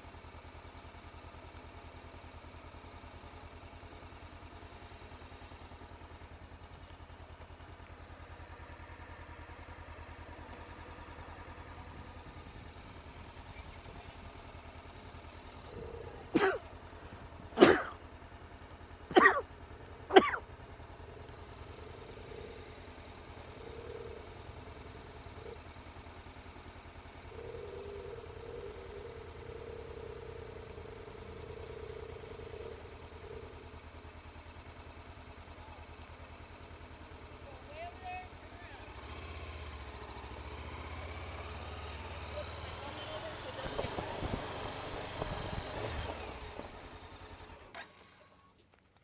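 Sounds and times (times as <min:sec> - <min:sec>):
motorcycle engine idling: 0:00.0 - 0:49.0
person coughing: 0:16.3 - 0:16.6, 0:17.6 - 0:18.0, 0:19.1 - 0:19.4, 0:20.1 - 0:20.4.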